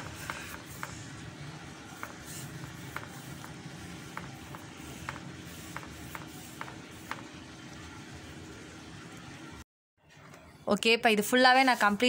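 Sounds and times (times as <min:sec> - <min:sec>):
paintbrush stroking rough wood: 0:02.0 - 0:07.1, 0:11.5 - 0:12.0.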